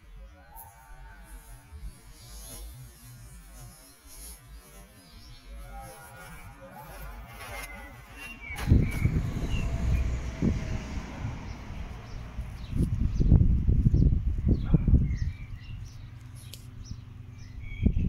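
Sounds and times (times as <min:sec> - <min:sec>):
wind and handling rumble: 0:08.3 - 0:18.0.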